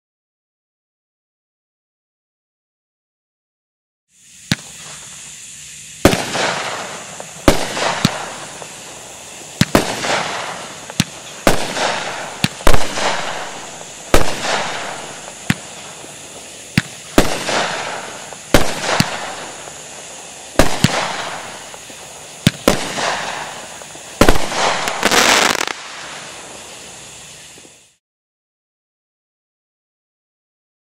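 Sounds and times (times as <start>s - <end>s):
firework hiss: 4.1s - 28.0s
fireworks cake shots: 4.2s - 28.0s.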